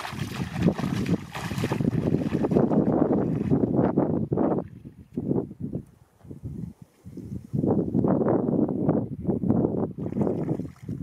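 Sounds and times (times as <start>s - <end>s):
shallow water splashing: 0.0s - 3.7s, 10.0s - 11.0s.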